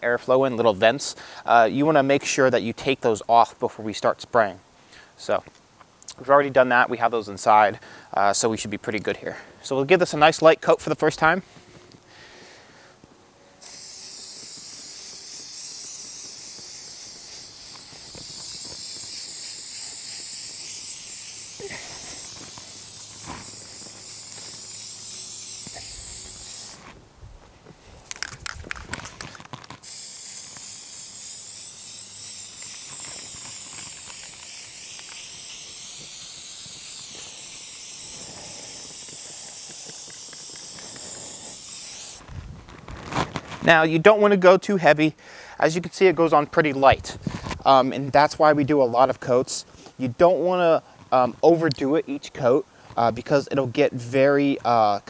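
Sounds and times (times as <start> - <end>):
aerosol spray can hissing: 13.6 - 27.0, 28.0 - 42.3.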